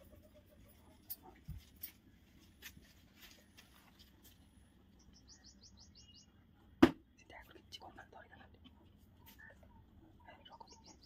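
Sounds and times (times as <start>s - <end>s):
sharp knock: 6.8s - 7.0s.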